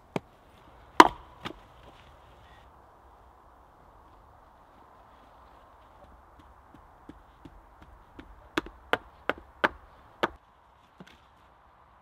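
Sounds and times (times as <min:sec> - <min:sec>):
stones knocking against stone: 0:06.4 - 0:10.4.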